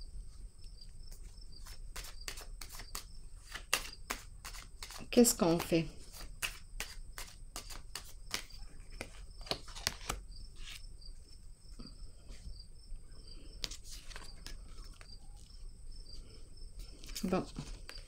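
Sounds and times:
cards clicking and snapping: 1.6 - 10.8, 13.6 - 15.5
faint high chirp: 14.2 - 16.2.

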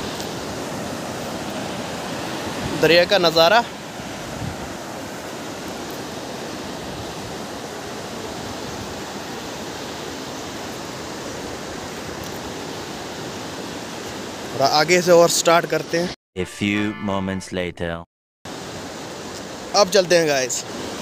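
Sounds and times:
river rushing over rapids: 0.0 - 15.3.

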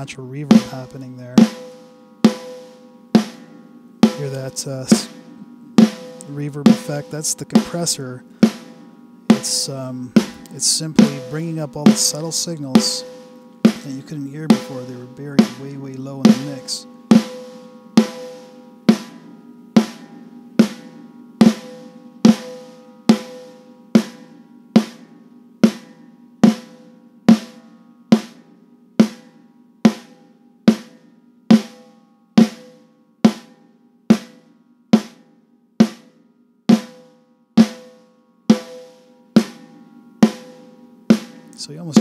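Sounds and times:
snare drum hits with reverb: 5.8 - 16.8.

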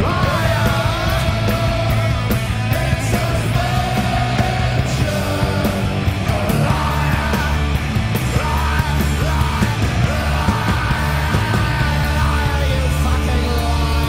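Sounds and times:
punk rock band playing live: 0.0 - 14.0
shouted lead vocal: 0.0 - 14.0.

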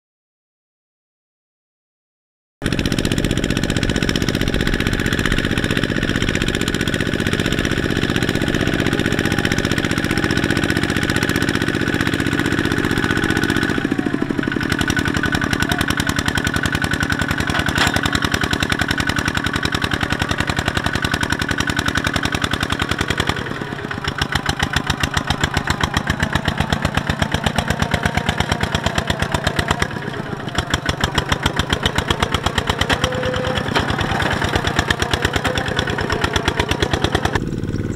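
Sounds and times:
diesel engine chugging: 2.6 - 37.9
wheels churning through mud: 2.6 - 37.9.

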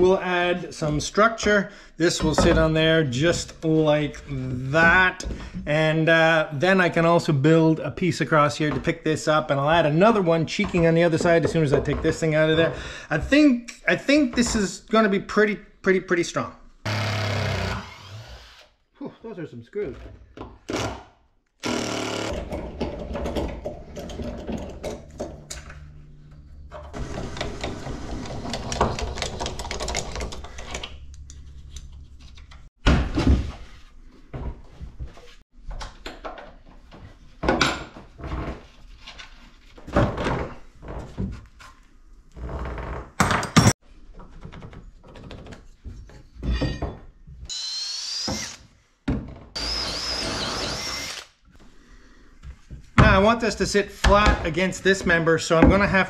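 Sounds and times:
cordless drill running: 16.9 - 18.7, 21.6 - 22.4, 49.6 - 51.3
drill boring through timber: 16.9 - 18.7, 21.6 - 22.5, 47.5 - 48.6, 49.6 - 51.3.

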